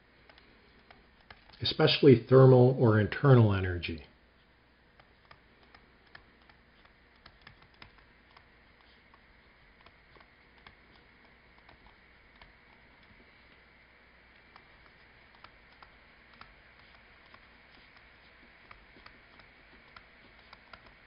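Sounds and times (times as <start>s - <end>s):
stylus tapping on tablet screen: 5.0s - 13.2s.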